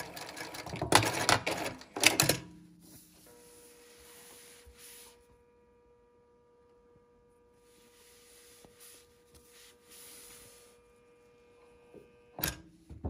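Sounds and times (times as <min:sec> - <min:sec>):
faint steady hum: 0:02.6 - 0:13.0
fabric rustling: 0:07.6 - 0:11.0.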